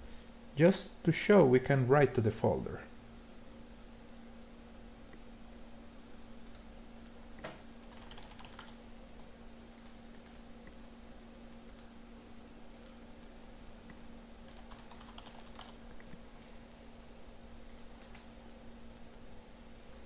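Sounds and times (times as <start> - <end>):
steady low hum: 0.0 - 20.0
computer keyboard and mouse clicks: 6.4 - 6.7, 7.4 - 8.8, 9.8 - 10.4, 11.7 - 11.9, 12.7 - 13.0, 14.5 - 16.1, 17.7 - 18.3.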